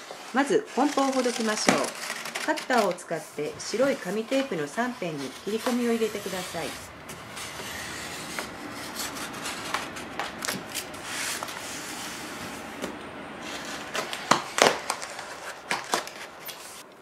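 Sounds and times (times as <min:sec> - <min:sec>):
box cutter slicing paper tape: 0:00.0 - 0:12.6
paper and cardboard rustling: 0:00.0 - 0:16.9.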